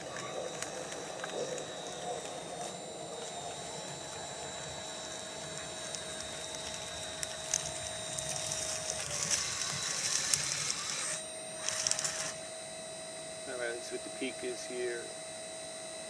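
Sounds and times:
drivetrain hissing clicking grind: 0.0s - 12.4s
electric motor whine: 0.0s - 16.0s.

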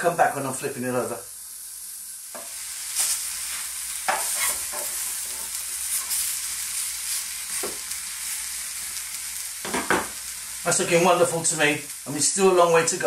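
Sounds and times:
fish sizzling in a frying pan: 0.0s - 13.0s
metal spatula scraping a pan: 4.1s - 6.2s.

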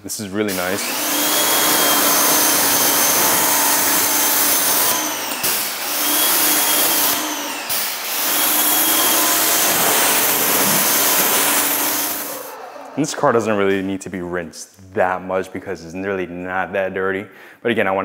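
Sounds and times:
pressure washer motor whine: 0.5s - 13.4s.

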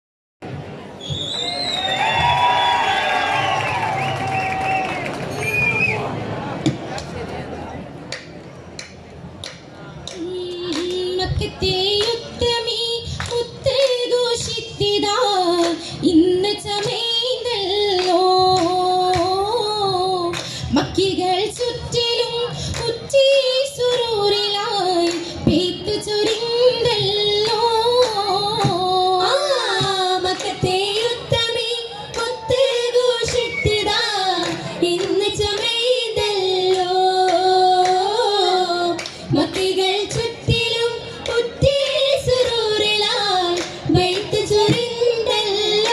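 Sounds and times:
hand claps: 8.1s - 11.0s, 17.9s - 19.3s, 29.8s - 31.1s, 33.2s - 33.6s, 34.4s - 35.7s, 36.6s - 38.1s, 38.9s - 40.3s, 42.3s - 44.9s
women singing: 10.2s - 45.9s.

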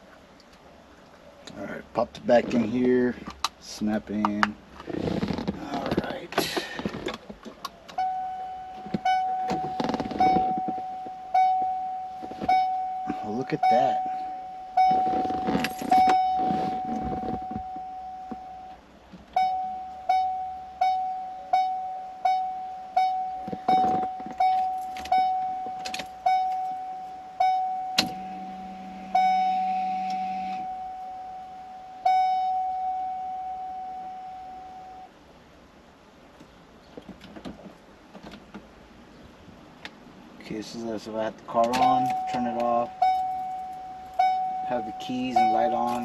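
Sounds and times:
warning chime ringing: 8.0s - 18.7s, 19.4s - 35.1s, 41.8s - 46.0s.

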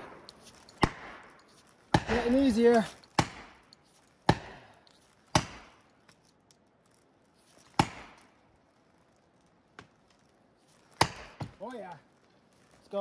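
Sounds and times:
axe pounding wedges: 1.9s - 2.3s, 3.2s - 3.6s, 4.3s - 4.7s, 5.3s - 5.7s.

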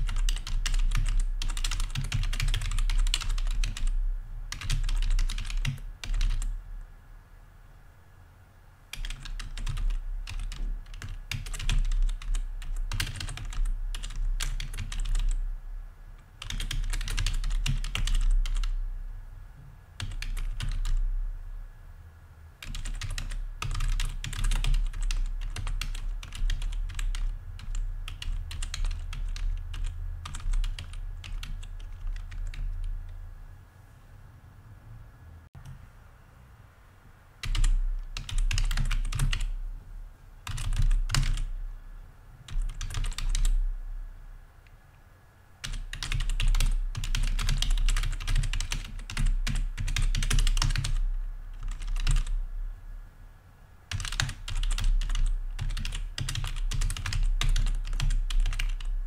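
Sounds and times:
typing on computer keyboard: 0.0s - 6.5s, 8.9s - 15.4s, 16.4s - 18.7s, 20.0s - 21.0s, 22.6s - 33.0s, 37.4s - 39.5s, 40.4s - 41.5s, 42.5s - 43.6s, 45.6s - 51.0s, 51.6s - 52.4s, 53.9s - 58.9s.

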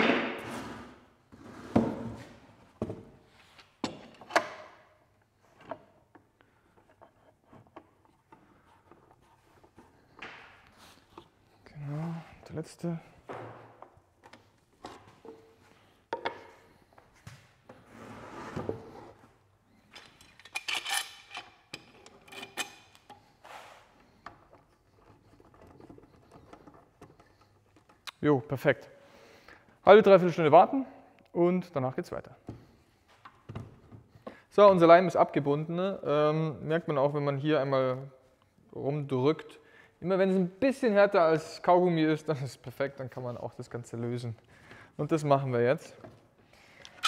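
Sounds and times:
metal clamps clinking: 19.9s - 23.3s.

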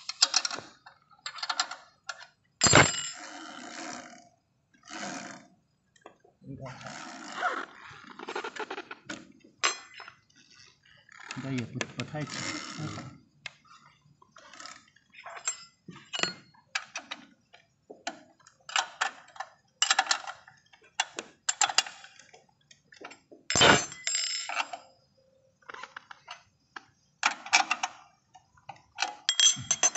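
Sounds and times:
metal tools clinking: 2.6s - 3.2s, 9.6s - 10.2s, 15.1s - 16.4s, 23.5s - 24.8s, 29.0s - 29.9s.

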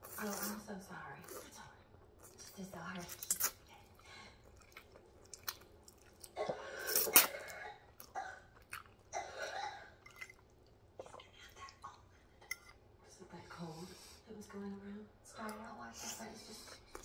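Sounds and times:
person chewing food: 1.2s - 12.8s, 16.7s - 17.0s.

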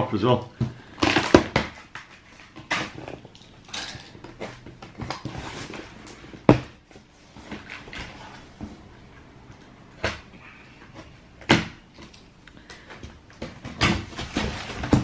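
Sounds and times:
packaging rustling and knocking: 0.6s - 8.1s, 13.4s - 15.0s.

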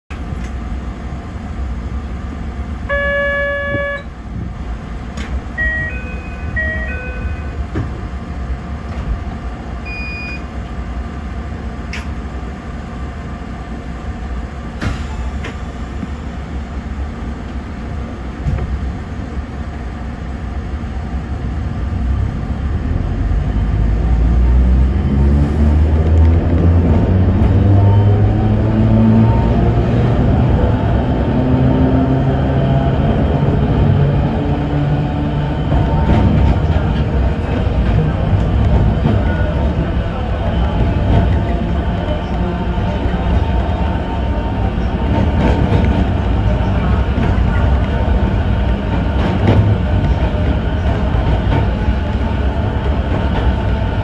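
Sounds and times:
train low hum: 0.1s - 54.0s
buzzer tone: 2.9s - 4.1s, 5.6s - 7.6s
electronic chime notes: 5.6s - 7.6s.

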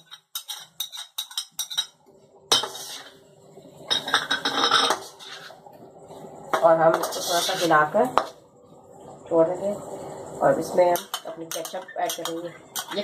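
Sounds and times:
spatula scraping in wok: 2.5s - 3.2s, 4.6s - 5.6s, 6.8s - 8.1s.

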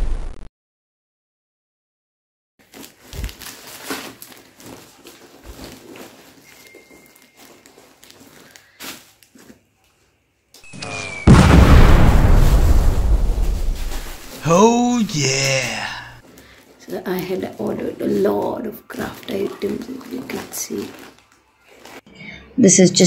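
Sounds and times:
bubble wrap crinkling: 2.6s - 10.4s, 13.3s - 22.0s
loud burst of noise: 10.7s - 15.0s.

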